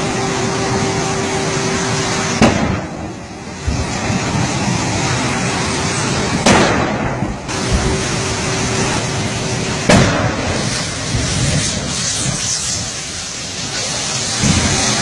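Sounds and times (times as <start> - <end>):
loud explosion blasts: 2.1 - 13.1, 14.2 - 15.0.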